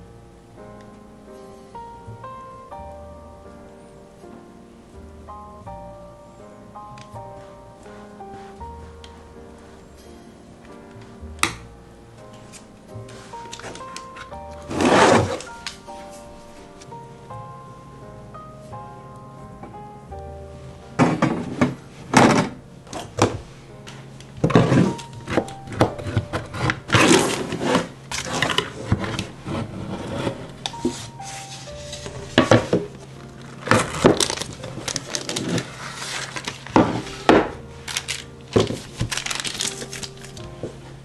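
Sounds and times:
soft background music: 0.0 - 41.0
parchment paper rustling: 12.3 - 16.9, 21.2 - 41.0.

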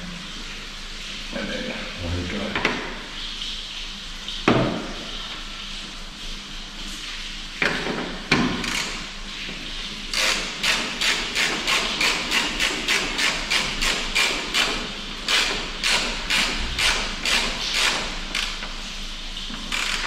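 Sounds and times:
ratchet clicking: 10.1 - 18.6, 19.7 - 20.0.

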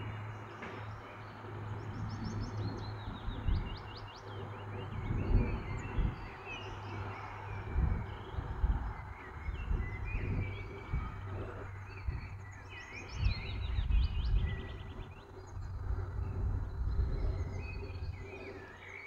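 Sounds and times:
low irregular rumble: 0.0 - 19.0
songbirds singing: 0.0 - 19.0.

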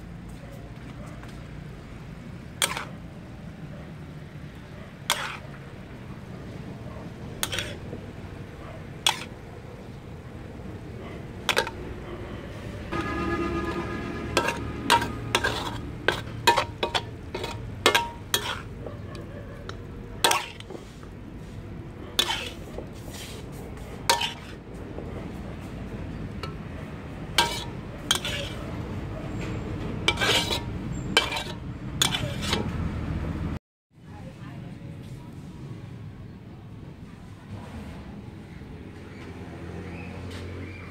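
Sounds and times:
metal spatula scraping wok: 2.4 - 3.2, 4.5 - 6.2, 7.2 - 24.7, 25.9 - 32.9.

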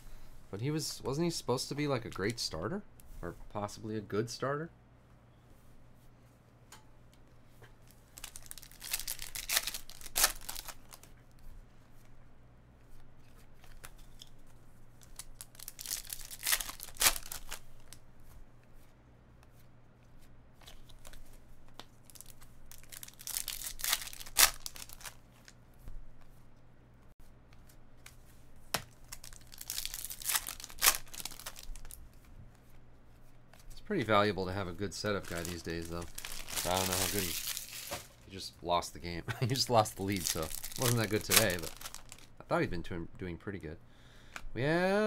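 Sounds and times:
wrapper crinkle and card handling: 1.0 - 2.7, 7.8 - 11.4, 12.9 - 18.0, 20.6 - 25.6, 27.6 - 32.4, 33.2 - 38.4, 39.5 - 42.4
foil wrapper tearing open: 8.2 - 11.1, 15.0 - 18.0, 22.0 - 25.2, 29.0 - 32.0, 35.1 - 38.1, 39.8 - 42.3.

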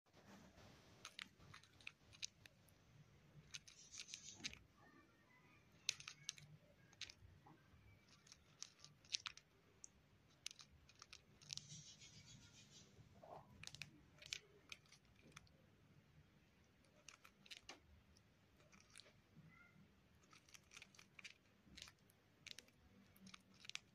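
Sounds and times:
bird grinding its beak: 3.4 - 4.6, 8.0 - 9.4, 10.3 - 15.5, 16.8 - 17.7, 18.6 - 19.1, 20.2 - 23.9.

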